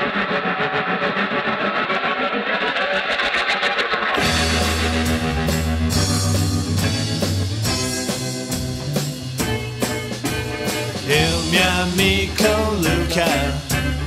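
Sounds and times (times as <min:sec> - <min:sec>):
electric guitar: 0:00.0 - 0:14.0
bass guitar: 0:04.1 - 0:14.0
drum kit beat: 0:04.2 - 0:14.0.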